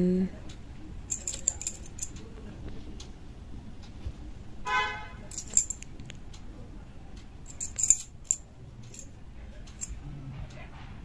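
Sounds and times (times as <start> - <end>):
metal bangles clinking: 1.1 - 2.2, 5.2 - 6.0, 7.4 - 9.1, 9.7 - 10.0.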